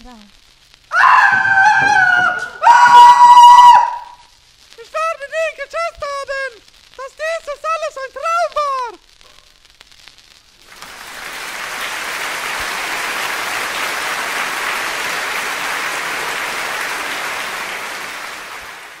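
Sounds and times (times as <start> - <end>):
audience applauding: 10.6 - 19.0.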